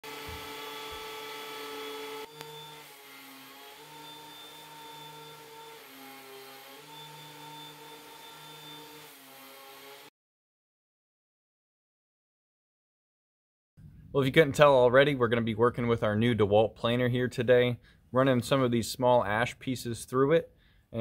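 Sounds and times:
thickness planer whining: 0.0 - 10.1.

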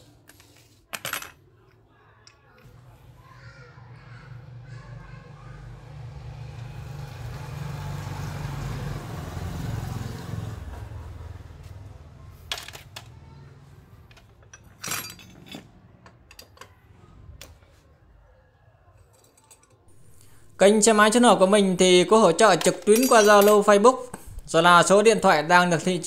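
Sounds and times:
passing vehicle engine hum: 4.2 - 12.5
metallic clinks of hand tools: 22.7 - 23.7.

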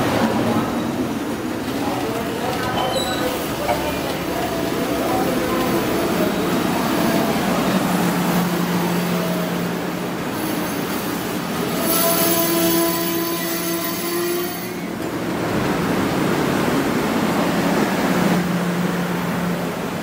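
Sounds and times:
train wheels rumbling: 0.0 - 20.0
wheels squealing: 2.5 - 4.0.

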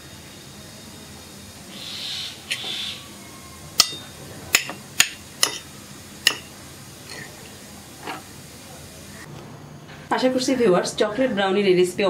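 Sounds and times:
spoon clinking on plate: 3.8 - 6.5.

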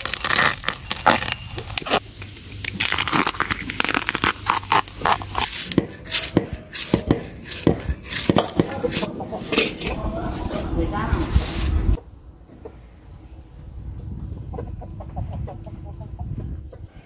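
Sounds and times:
knife scraping bamboo shoot: 0.0 - 9.9
dry leaves crackling: 0.0 - 10.5.

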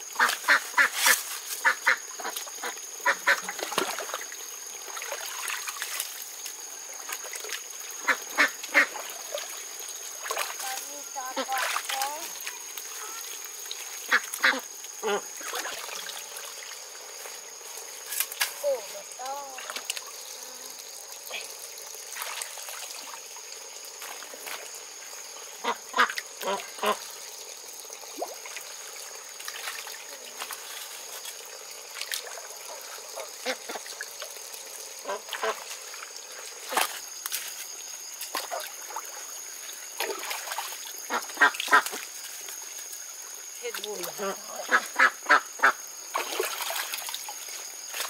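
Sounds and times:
ducks quacking: 1.6 - 3.6, 8.0 - 9.0, 14.1 - 15.6, 25.6 - 27.0, 35.0 - 35.6, 41.1 - 42.0, 44.2 - 45.8.

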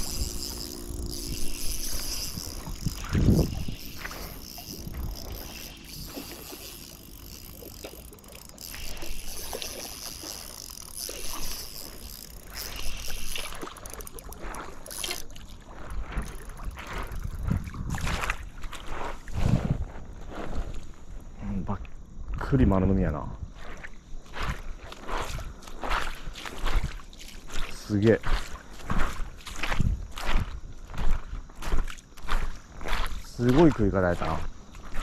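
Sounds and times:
fishing reel spinning: 0.0 - 19.0
fish thrashing and splashing in water: 0.0 - 19.3.

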